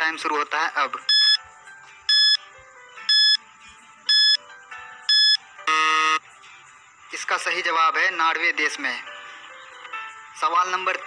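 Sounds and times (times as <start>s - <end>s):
faint background music: 0.0s - 11.0s
buzzer tone: 1.1s - 1.4s, 2.1s - 2.4s, 3.1s - 3.4s, 4.1s - 4.4s, 5.1s - 6.2s
short electronic beeps: 1.1s - 1.4s, 2.1s - 2.4s, 3.1s - 3.4s, 4.1s - 4.4s, 5.1s - 6.2s.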